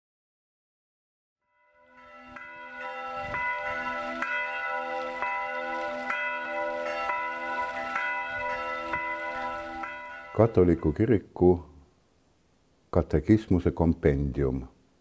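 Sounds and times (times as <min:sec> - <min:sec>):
church bells ringing: 0:01.5 - 0:11.2.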